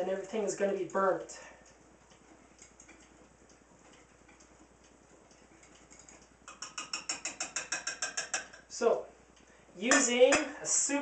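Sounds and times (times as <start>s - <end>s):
batter beaten in bowl clicking: 2.6s - 8.8s, 9.8s - 10.6s.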